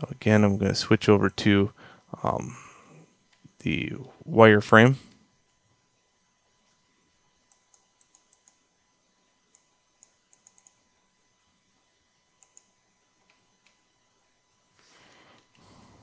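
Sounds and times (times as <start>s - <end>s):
computer keyboard clicking: 9.5s - 10.8s, 12.4s - 12.7s.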